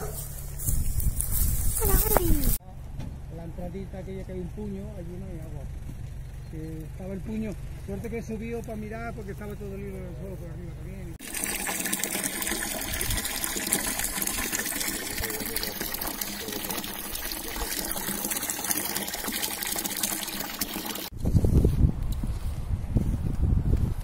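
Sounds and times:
water gushing from hose: 11.2 - 21.1
water splashing into metal trough: 11.2 - 21.1.

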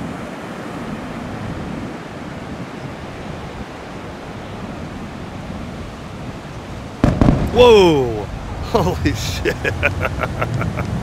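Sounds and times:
ocean surf breaking: 0.0 - 11.0
wind buffeting microphone: 0.0 - 11.0.

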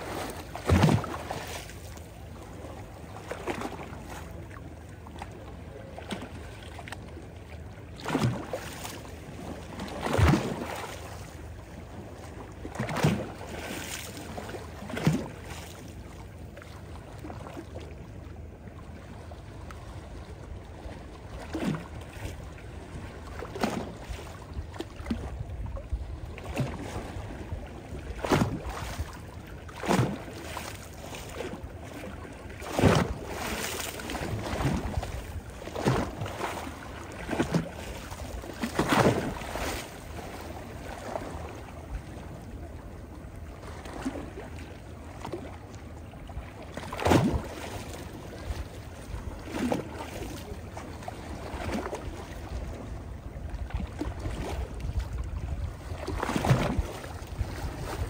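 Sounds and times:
short wave splashes: 0.0 - 4.6, 28.1 - 42.2, 46.7 - 52.8
waves lapping on stony shore: 0.0 - 58.0.

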